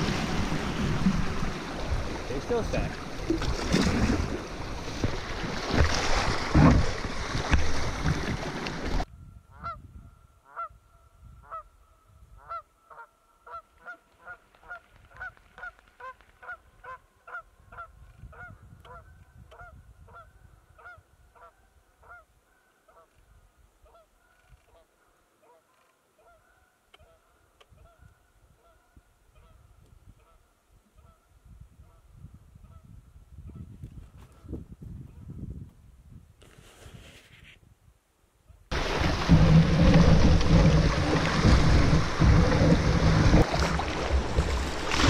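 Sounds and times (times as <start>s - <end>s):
rapids rushing against canoe: 0.0s - 9.1s, 38.7s - 45.0s.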